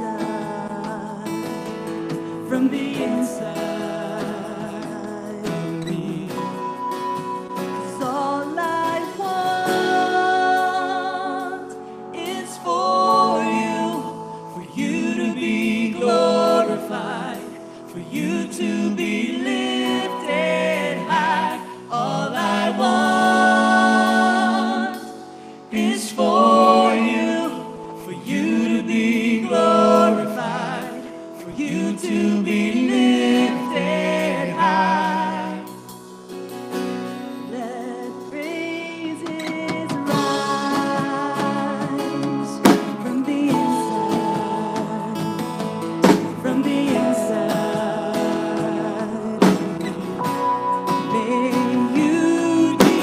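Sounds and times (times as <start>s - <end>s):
woman singing into a microphone: 0.0s - 35.7s, 37.5s - 53.0s
live band accompaniment: 0.0s - 53.0s.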